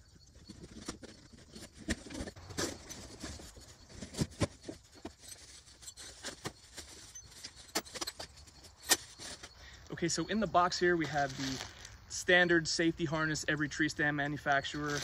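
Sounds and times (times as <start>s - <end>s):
cardboard scraping and rustling: 0.4s - 9.6s.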